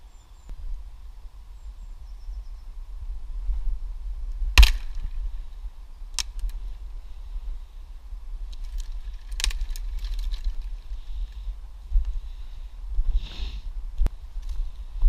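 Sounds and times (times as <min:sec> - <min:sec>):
low microphone rumble: 0:00.0 - 0:15.0
twigs cracking and rustling: 0:04.3 - 0:07.0, 0:08.3 - 0:12.2.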